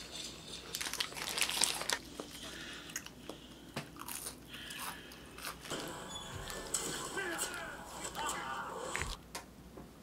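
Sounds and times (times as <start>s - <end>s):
paper wrapper rustling: 0.6s - 2.0s
chewing with crisp cracks: 0.8s - 5.7s.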